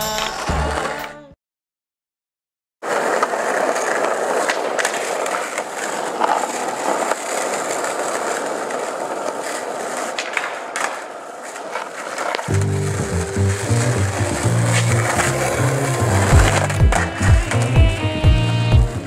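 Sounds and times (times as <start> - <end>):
skateboard wheels rolling on pavement: 2.8 - 19.0
skateboard knocking on bench: 12.4 - 18.9.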